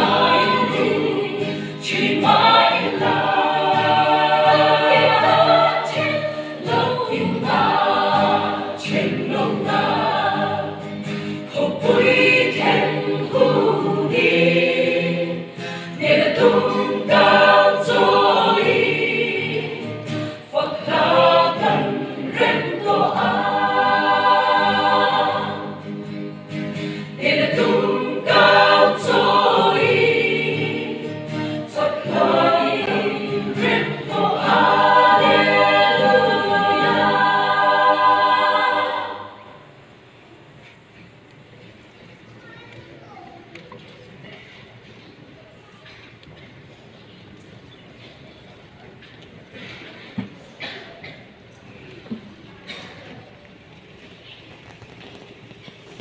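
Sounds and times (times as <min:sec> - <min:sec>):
mixed choir singing: 0:00.0 - 0:40.3.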